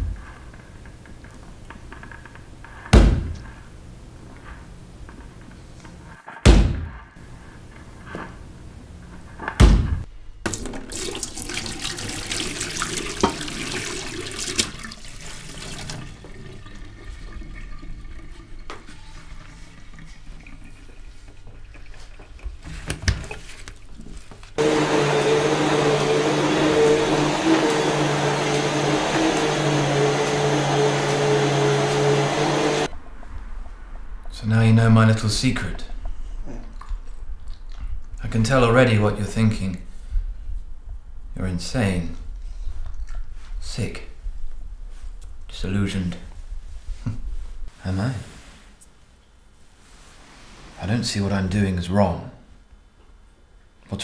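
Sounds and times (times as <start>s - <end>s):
loud thuds: 2.9s - 3.5s, 6.4s - 7.1s, 9.6s - 10.0s
vacuum cleaner motor hum: 24.6s - 32.9s
rushing noise: 24.6s - 35.3s.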